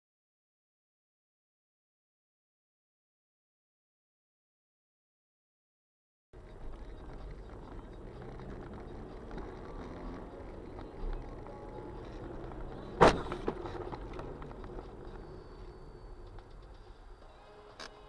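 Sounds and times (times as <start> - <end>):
car engine hum with road noise: 6.4 - 17.3.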